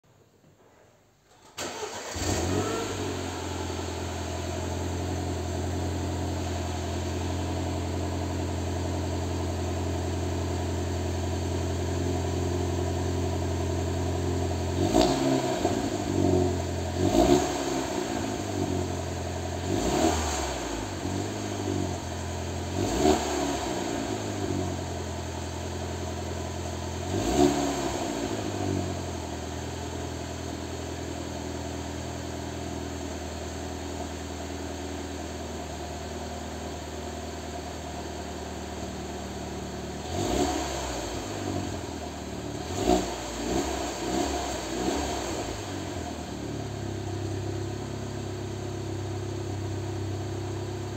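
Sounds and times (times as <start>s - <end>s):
car engine starting and idling: 1.2s - 50.9s
engine revving: 1.6s - 8.2s, 14.4s - 24.9s, 26.9s - 29.2s, 40.0s - 48.6s.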